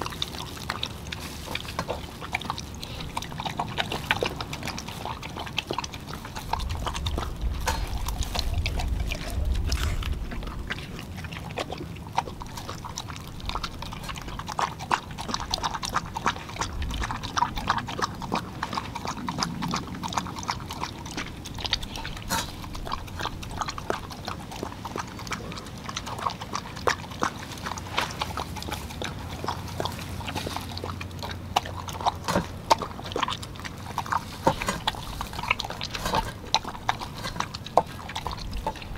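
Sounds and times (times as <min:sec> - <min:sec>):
dog chewing and lapping: 0:00.0 - 0:38.9
low rumble: 0:06.3 - 0:14.0.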